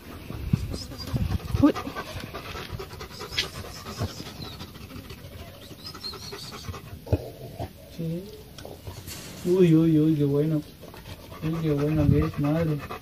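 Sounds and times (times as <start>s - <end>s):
dog panting: 0.0s - 7.9s, 10.6s - 13.0s.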